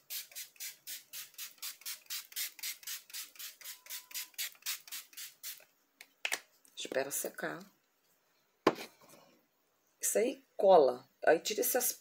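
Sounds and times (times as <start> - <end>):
spray bottle hisses: 0.0 - 5.6.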